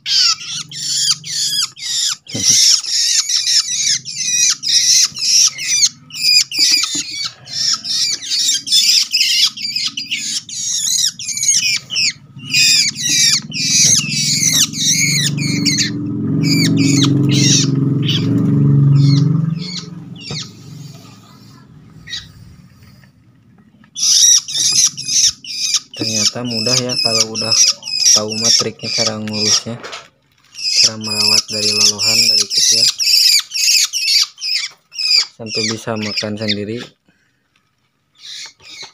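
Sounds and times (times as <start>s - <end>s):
birds rasping squawk calls: 0.0s - 23.1s, 23.8s - 29.8s, 30.4s - 36.9s, 38.1s - 38.9s
low rumble: 9.8s - 25.5s.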